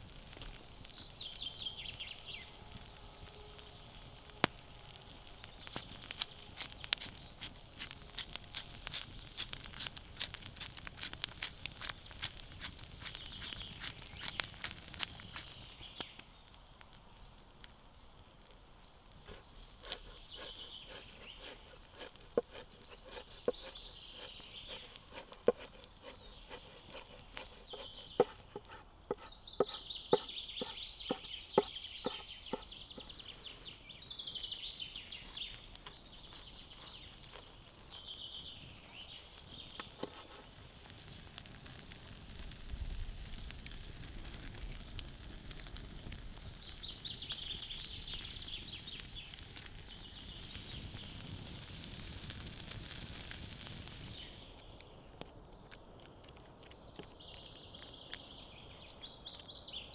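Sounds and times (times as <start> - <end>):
wood fire rumbling: 0.0 - 59.0
birds singing: 0.4 - 16.7, 17.8 - 41.4, 46.4 - 51.6, 53.9 - 59.9
knife chopping on wooden board: 19.8 - 32.7.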